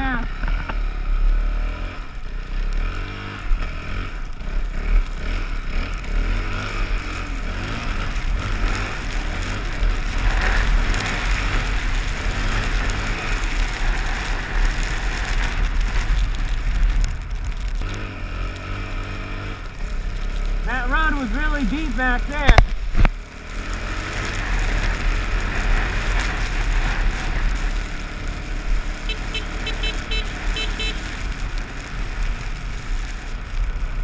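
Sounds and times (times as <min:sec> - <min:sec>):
atv engine revving: 0:00.0 - 0:34.0
rushing noise: 0:03.2 - 0:34.0.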